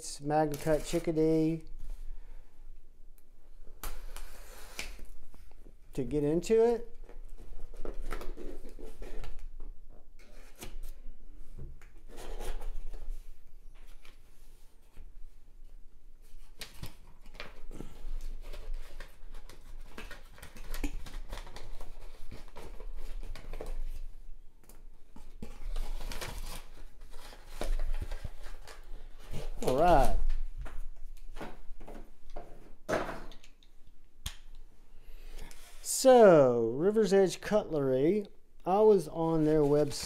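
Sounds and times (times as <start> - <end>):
cardboard and paper being handled: 18.2 - 24.1, 38.8 - 40.0.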